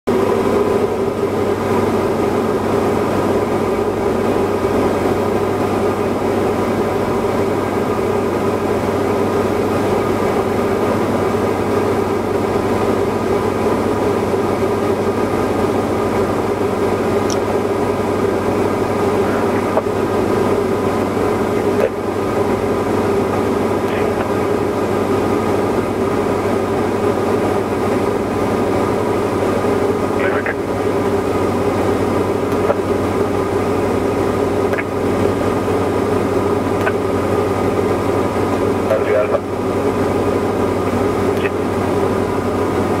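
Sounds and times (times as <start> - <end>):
aircraft engine droning in cockpit: 0.1 - 43.0.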